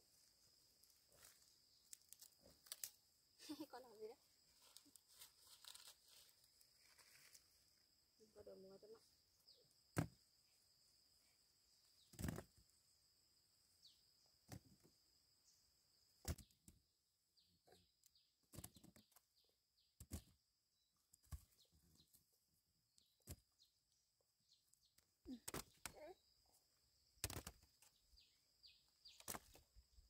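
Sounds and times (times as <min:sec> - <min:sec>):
falling bird chirps: 0:27.1 - 0:29.7.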